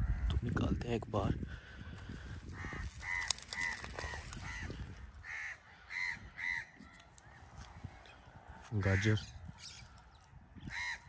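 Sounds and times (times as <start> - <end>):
crow cawing: 2.4 - 9.3, 10.6 - 11.0.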